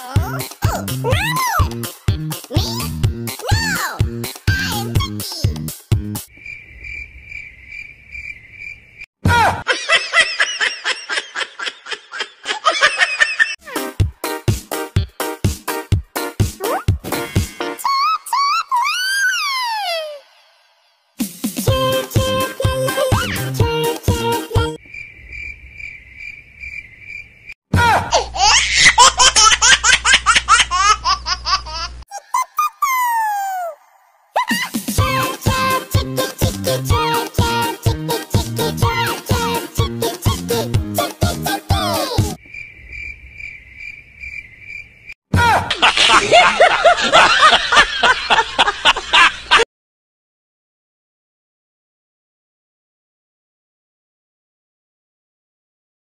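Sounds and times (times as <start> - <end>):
music: 0.0 - 6.3, 13.6 - 17.8, 20.8 - 24.8, 34.7 - 42.4
crickets chirping: 6.3 - 9.1, 24.8 - 27.6, 42.4 - 45.2
rapid laughter: 9.4 - 13.6, 45.5 - 49.6.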